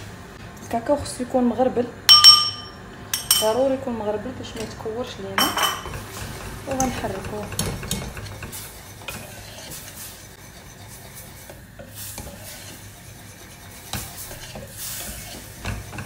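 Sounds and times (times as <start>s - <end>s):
whisk scraping a metal pan: 5.8s - 16.0s.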